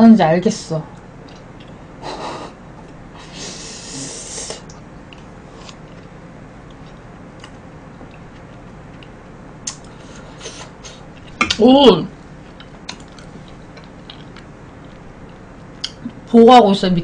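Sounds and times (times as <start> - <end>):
person sniffing: 3.2 - 4.6, 10.0 - 11.0
faint eating clicks: 4.6 - 9.9, 12.5 - 16.2.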